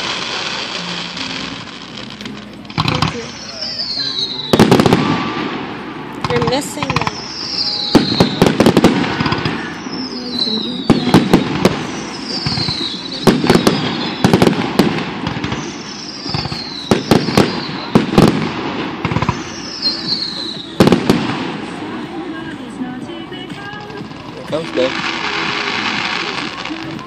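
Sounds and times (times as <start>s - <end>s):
fireworks bangs: 0.0s - 22.5s, 23.5s - 27.0s
falling firework whistle: 3.1s - 5.6s, 7.0s - 18.4s, 19.0s - 21.1s.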